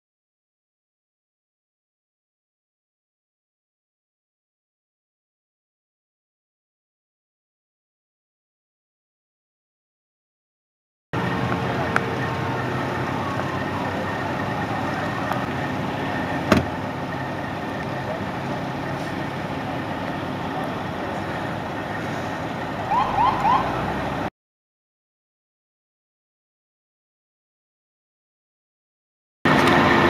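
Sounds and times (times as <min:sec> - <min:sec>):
truck engines idling: 0:11.2 - 0:24.3, 0:29.5 - 0:30.0.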